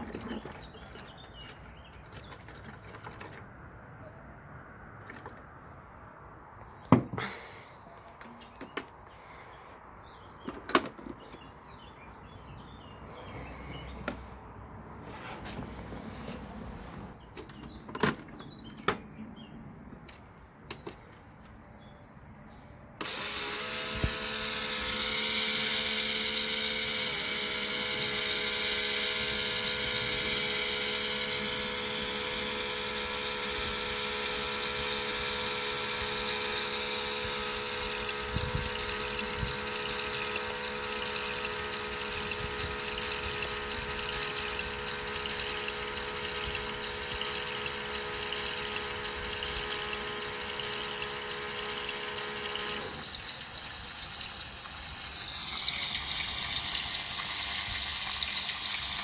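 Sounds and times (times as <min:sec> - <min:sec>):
electric pump motor whine: 0:00.0 - 0:03.4, 0:23.0 - 0:59.0.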